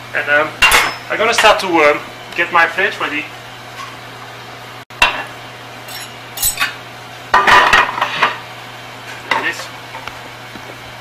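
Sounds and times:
metal pans and plates clattering: 0:05.9 - 0:06.8.

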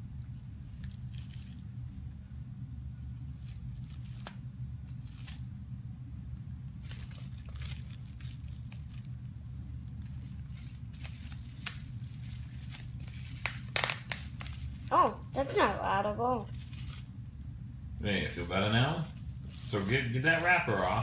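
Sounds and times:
low background hum: 0:00.0 - 0:21.0
bubble wrap crinkling: 0:00.2 - 0:02.0, 0:03.2 - 0:05.6, 0:06.7 - 0:21.0.

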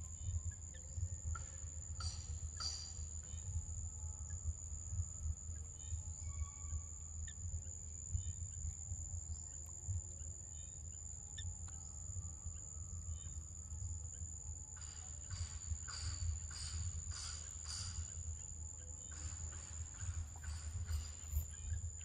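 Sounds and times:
high insect drone: 0:00.0 - 0:22.0
rasping pulsing insect call: 0:00.0 - 0:22.0
bird chirps: 0:00.1 - 0:04.4, 0:09.3 - 0:22.0.

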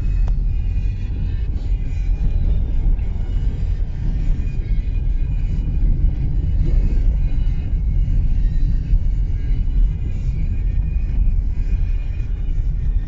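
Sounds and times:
car driving on unpaved road: 0:00.0 - 0:13.0.

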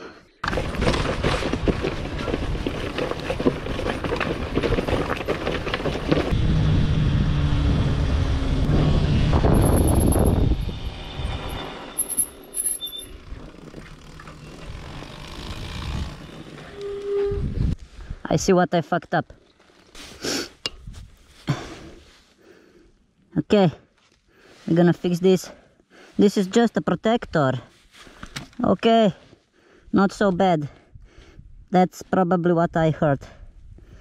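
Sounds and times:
motorcycle engine clattering: 0:00.4 - 0:06.3.

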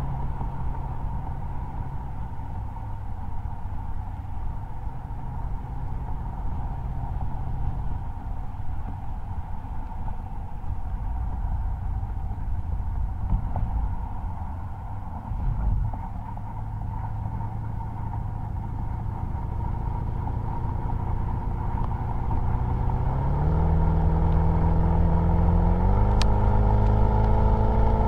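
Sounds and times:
car exhaust droning: 0:00.0 - 0:28.0
road and wind noise: 0:00.0 - 0:28.0.

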